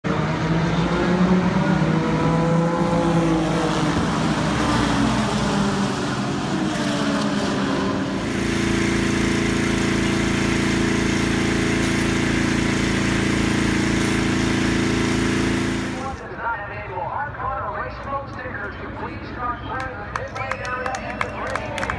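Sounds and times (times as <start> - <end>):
race cars accelerating: 0.0 - 10.3.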